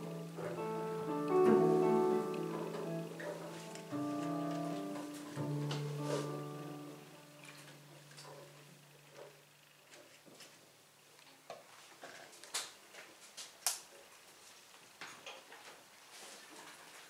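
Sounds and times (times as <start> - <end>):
low held note: 0.0 - 8.4.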